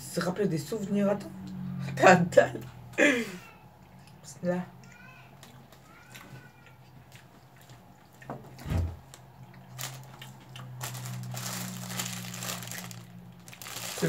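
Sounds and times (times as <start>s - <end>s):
plastic wrapper crinkling: 9.1s - 14.0s.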